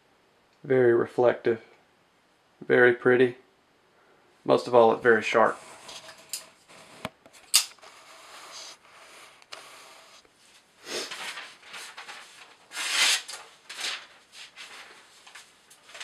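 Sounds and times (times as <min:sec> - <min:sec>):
short rustling scrapes: 0:05.3 - 0:07.1, 0:07.8 - 0:16.0.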